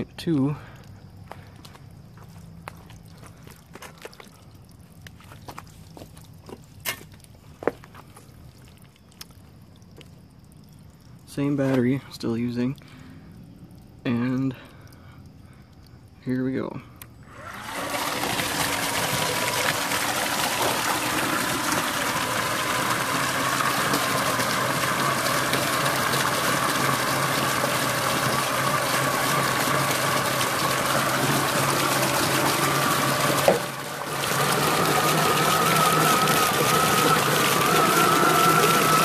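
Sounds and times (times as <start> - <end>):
electric motor and gearbox whine: 16.4 - 39.0
water jet splashing into tub: 17.3 - 39.0.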